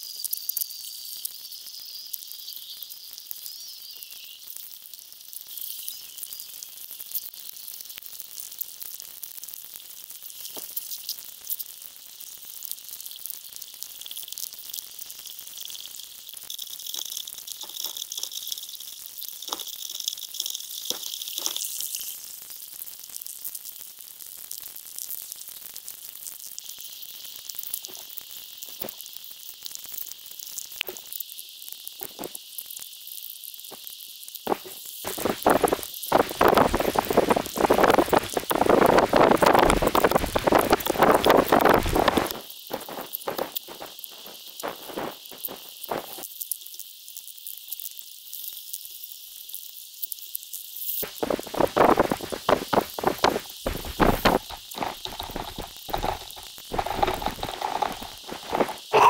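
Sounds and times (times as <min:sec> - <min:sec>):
high sizzling underwater hiss: 0:00.0 - 0:59.0
water rush: 0:51.0 - 0:59.0.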